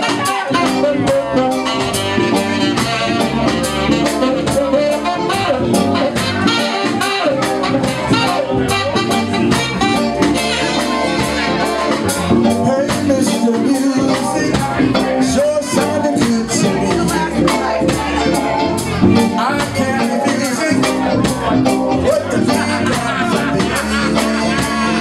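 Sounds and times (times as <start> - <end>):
bass guitar: 0.0 - 25.0
drum beat: 0.0 - 25.0
electric guitars: 0.0 - 25.0
saxophone: 0.0 - 25.0.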